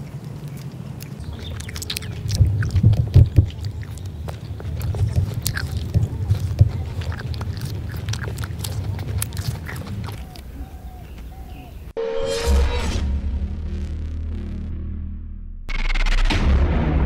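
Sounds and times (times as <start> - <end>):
close-up chewing and mouth smacks: 0.0 - 11.8.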